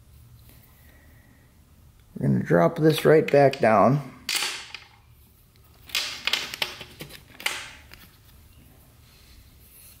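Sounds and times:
metal parts clicking and tapping: 2.9s - 5.0s, 5.8s - 8.0s.

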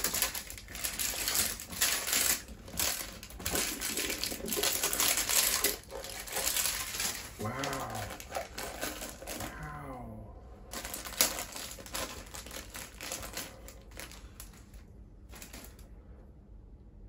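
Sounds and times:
crisp food being chewed: 0.0s - 9.6s
plastic wrapper crinkling: 0.0s - 9.6s, 10.7s - 15.9s
person humming: 7.4s - 8.4s, 9.4s - 10.4s.

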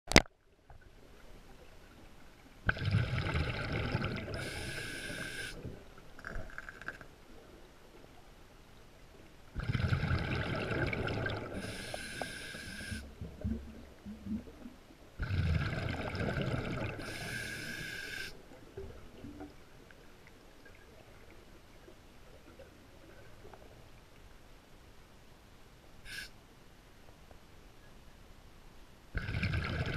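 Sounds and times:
exhaust bubbles gurgling: 2.6s - 5.3s, 9.6s - 12.3s, 15.2s - 17.7s, 29.2s - 29.9s
diver breathing through regulator: 4.4s - 5.6s, 11.5s - 13.1s, 17.0s - 18.4s, 26.0s - 26.4s.

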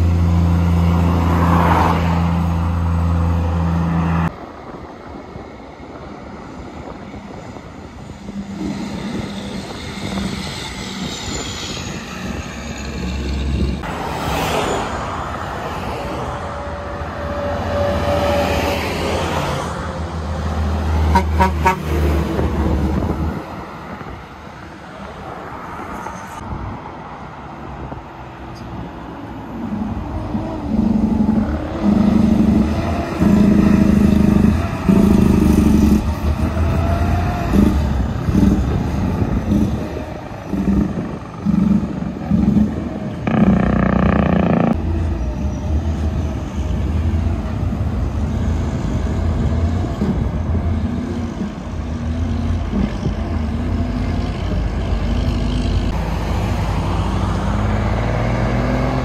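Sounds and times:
road traffic passing: 0.0s - 59.0s
loud horn blast: 20.9s - 22.2s
engine revving: 29.6s - 59.0s.

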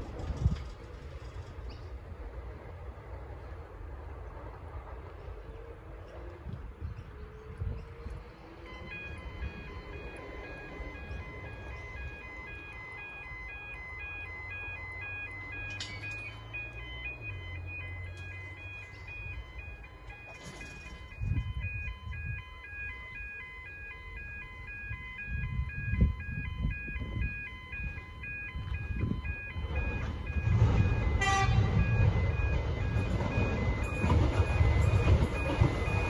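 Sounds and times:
electric train approaching: 0.0s - 36.0s.

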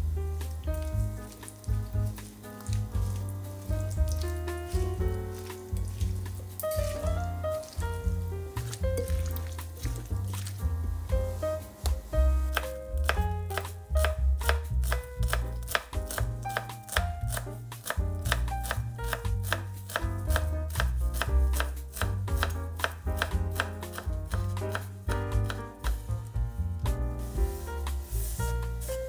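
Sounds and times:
background music: 0.0s - 29.0s
knife chopping on wooden board: 11.8s - 26.0s.

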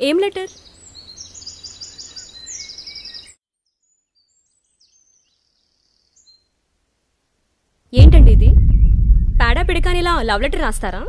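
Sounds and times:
small birds chirping: 0.1s - 6.5s.

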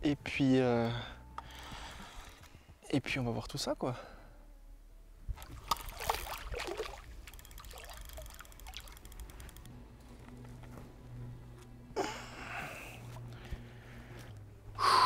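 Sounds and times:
water lapping: 5.4s - 9.0s
water splashing from a fish: 5.4s - 9.0s.

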